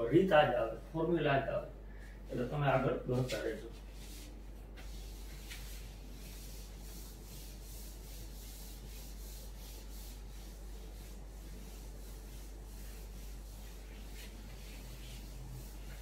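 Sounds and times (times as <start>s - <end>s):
steady low hum: 0.0s - 16.0s
duster rubbing on whiteboard: 3.2s - 16.0s.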